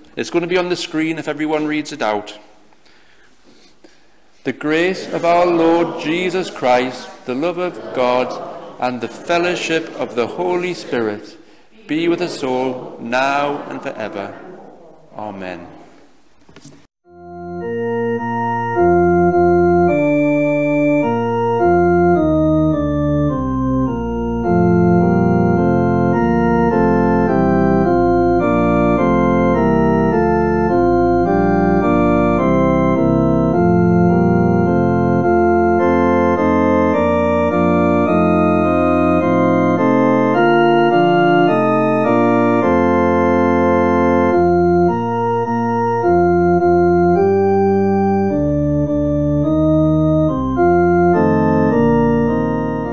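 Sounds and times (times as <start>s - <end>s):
organ chords: 0.0s - 14.4s, 17.0s - 52.9s.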